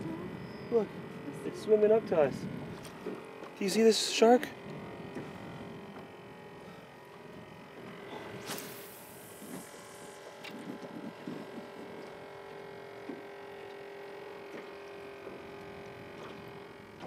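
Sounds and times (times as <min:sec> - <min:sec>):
steady electric hum: 0:00.0 - 0:17.0
brief hiss: 0:08.4 - 0:10.2.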